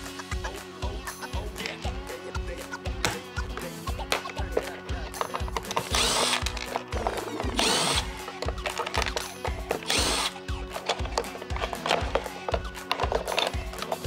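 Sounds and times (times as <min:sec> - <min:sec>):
cordless driver spinning screws: 0:05.2 - 0:14.0.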